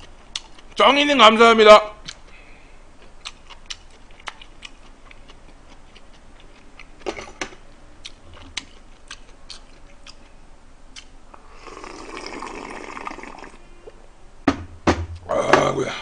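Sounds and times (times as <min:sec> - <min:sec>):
person chewing with wet smacks: 0:00.0 - 0:00.8, 0:02.0 - 0:02.4, 0:03.0 - 0:07.0, 0:08.0 - 0:11.2.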